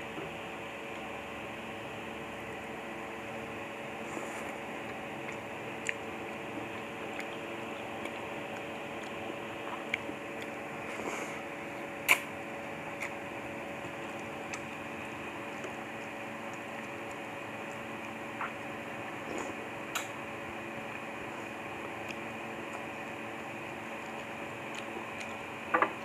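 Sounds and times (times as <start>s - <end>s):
steady background hum: 0.0s - 26.0s
soft slurping: 3.0s - 25.6s.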